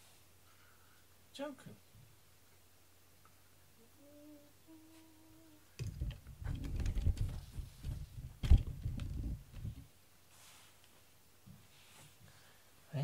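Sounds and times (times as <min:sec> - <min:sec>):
person humming: 0:03.7 - 0:05.7
rumbling rustling and clicking: 0:05.8 - 0:09.9.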